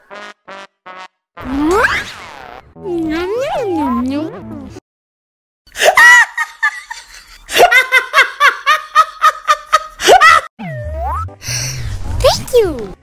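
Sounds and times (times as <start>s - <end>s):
high-pitched laughter: 5.8s - 10.5s.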